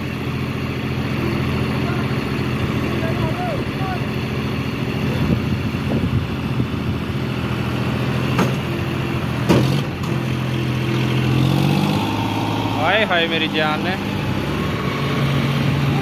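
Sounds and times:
tractor diesel engines under load: 0:00.0 - 0:16.0
sharp knocks: 0:08.3 - 0:08.8, 0:09.4 - 0:10.2.

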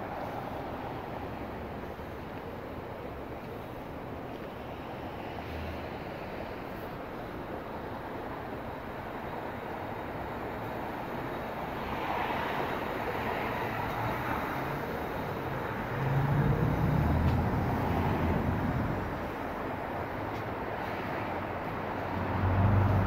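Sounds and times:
passing vehicles: 0:00.0 - 0:23.0
low engine rumble: 0:13.9 - 0:23.0.

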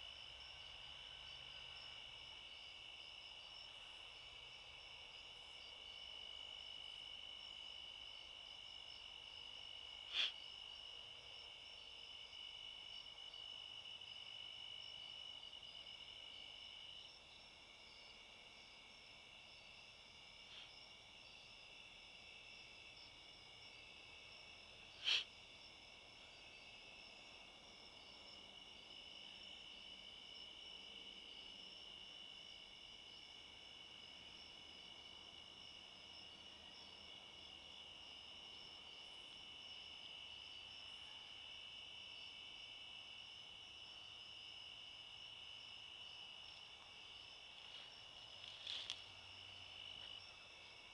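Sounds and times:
crickets trilling: 0:00.1 - 0:50.9.

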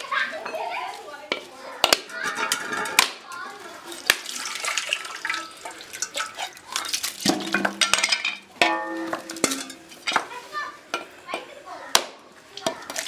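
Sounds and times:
machete cracking coconuts: 0:04.0 - 0:04.4.

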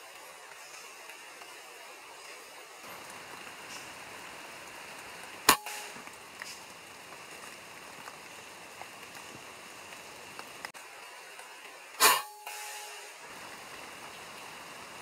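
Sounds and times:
rain hissing: 0:00.0 - 0:15.0
short ringing tone: 0:12.2 - 0:13.1.

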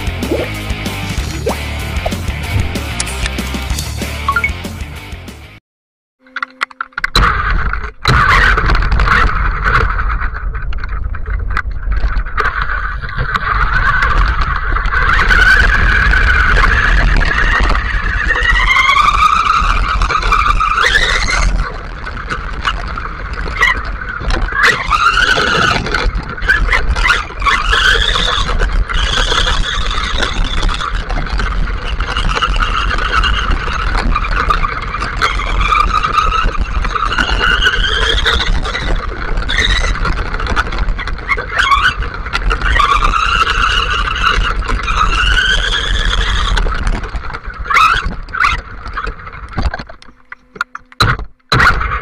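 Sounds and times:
electric motor whining: 0:49.5 - 0:52.0.

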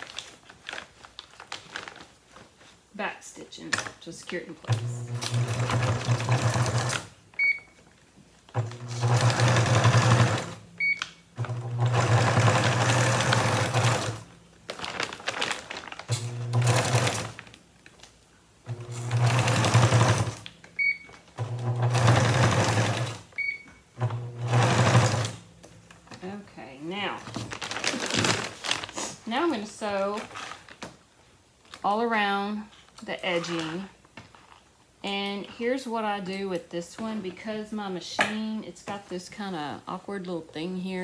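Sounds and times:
sewing machine stitching: 0:04.7 - 0:07.1, 0:08.6 - 0:10.6, 0:11.4 - 0:14.2, 0:16.1 - 0:17.4, 0:18.7 - 0:20.4, 0:21.4 - 0:23.2, 0:24.0 - 0:25.4.

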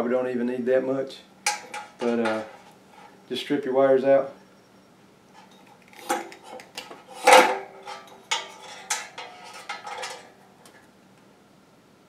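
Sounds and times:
wire strippers clicking and snipping: 0:01.4 - 0:02.6.

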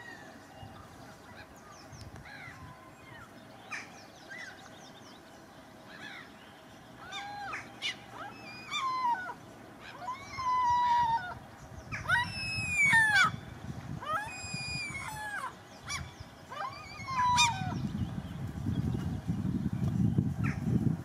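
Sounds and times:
gull calling: 0:07.0 - 0:13.4, 0:14.0 - 0:17.8.

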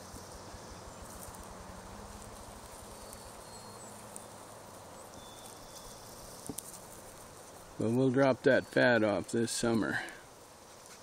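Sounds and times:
steady low hiss: 0:00.0 - 0:11.0
faint high-pitched chirps: 0:02.4 - 0:06.6, 0:07.8 - 0:10.2.

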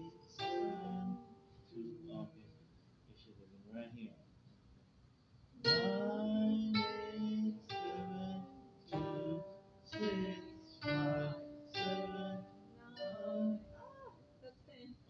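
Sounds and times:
koto notes plucked: 0:05.6 - 0:13.9.

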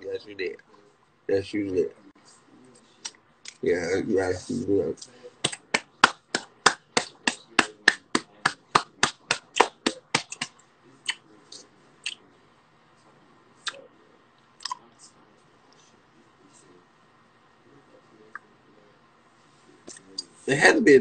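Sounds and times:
person clapping hands: 0:05.4 - 0:10.5.

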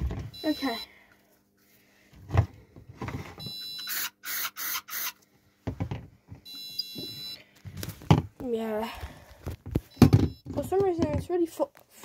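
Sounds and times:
alarm panel buzzer: 0:00.4 - 0:00.9, 0:03.4 - 0:05.1, 0:06.5 - 0:07.4.

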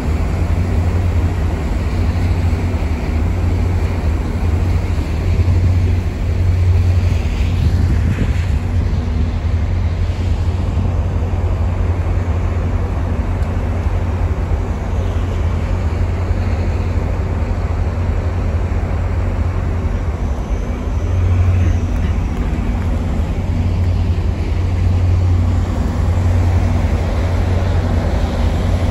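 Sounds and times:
locomotive engines idling: 0:09.0 - 0:28.9.

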